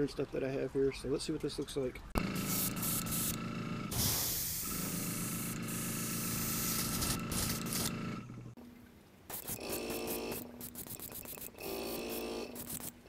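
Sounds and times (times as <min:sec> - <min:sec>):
airbrush spraying hiss: 0:02.4 - 0:07.9, 0:09.3 - 0:11.6, 0:12.6 - 0:13.0.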